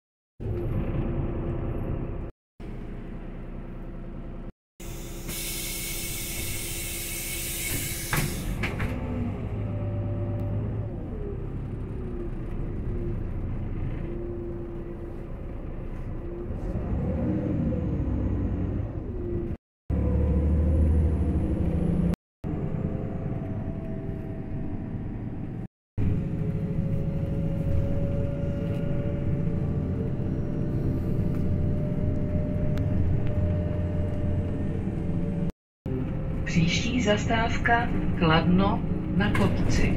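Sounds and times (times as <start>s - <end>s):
bus diesel engine running: 0.4s - 39.9s
compressed air hiss: 4.8s - 8.2s.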